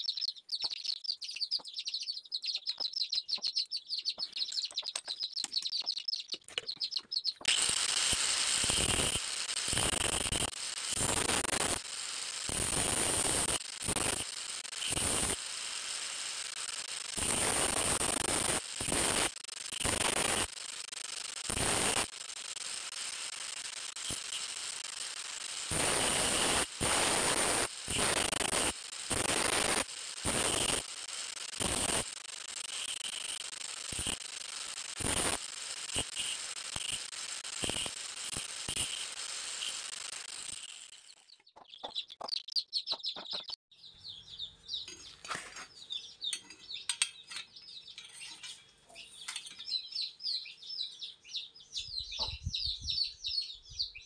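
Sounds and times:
birds chirping: 0.0s - 7.8s, 37.6s - 54.0s
grinding copper tube bursts: 7.5s - 41.1s.

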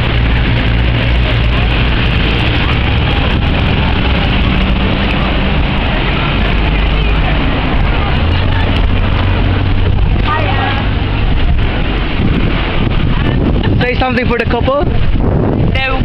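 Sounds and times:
crowd chatter: 0.0s - 16.0s
wind rumble on microphone: 0.0s - 16.0s
microphone handling noise: 7.4s - 16.0s.

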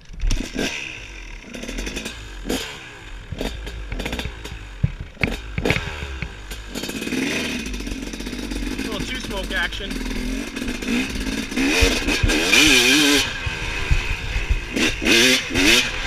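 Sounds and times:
dirt bike engine revving: 0.2s - 16.0s
sharp knocks and clatter: 3.3s - 7.1s, 10.6s - 15.8s.

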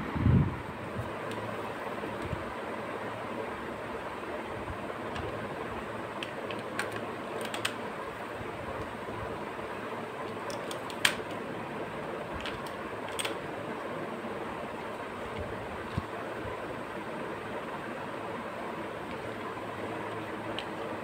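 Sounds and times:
batteries clicking into plastic: 6.2s - 7.8s, 10.3s - 11.4s.

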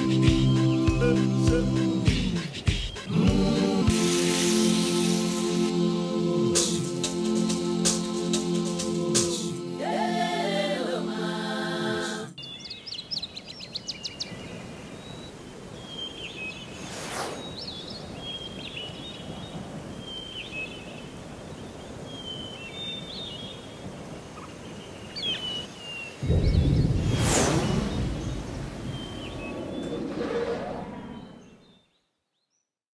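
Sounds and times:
birds chirping: 0.0s - 3.2s, 12.4s - 32.1s
music: 0.0s - 12.4s
brief whoosh: 16.8s - 17.6s, 26.2s - 31.6s.

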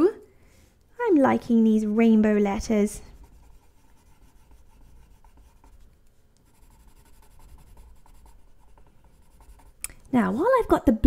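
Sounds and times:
pencil scratching on paper: 1.8s - 9.8s.

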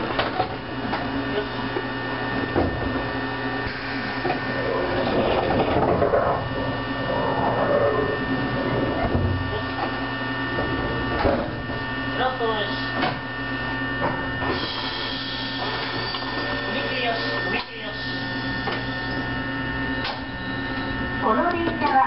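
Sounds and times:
electrical equipment hum with tones: 0.0s - 22.0s.

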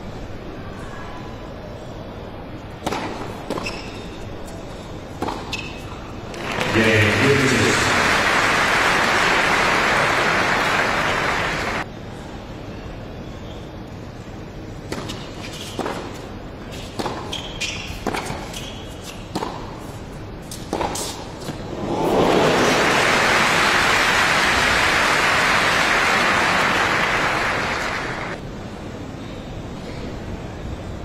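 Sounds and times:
crowd applause: 6.3s - 11.8s, 21.7s - 28.4s.

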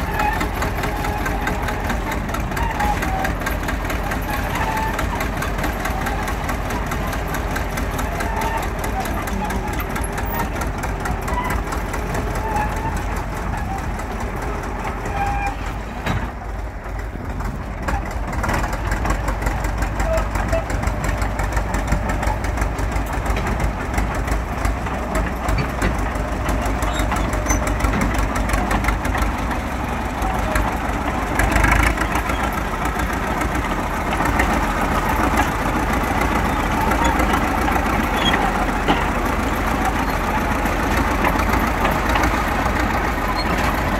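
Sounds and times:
bulldozer diesel engine running: 0.0s - 43.9s.

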